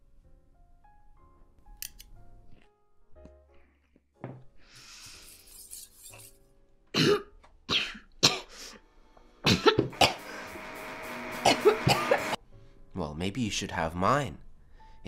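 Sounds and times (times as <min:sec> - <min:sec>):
woman coughing: 0:07.0 - 0:08.5, 0:09.5 - 0:10.2, 0:11.4 - 0:12.2.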